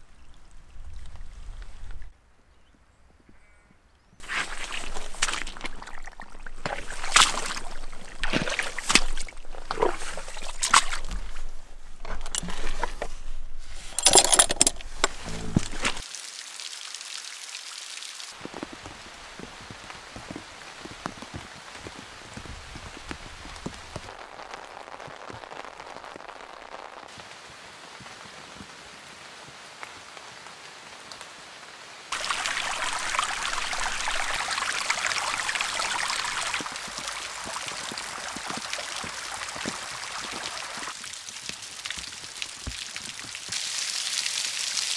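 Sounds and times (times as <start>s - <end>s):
rain hiss: 4.2s - 6.0s, 14.7s - 44.9s
boots squelching through mud: 4.2s - 14.0s, 14.8s - 16.0s, 32.1s - 44.2s
water running over stones: 4.2s - 31.5s, 32.1s - 44.9s.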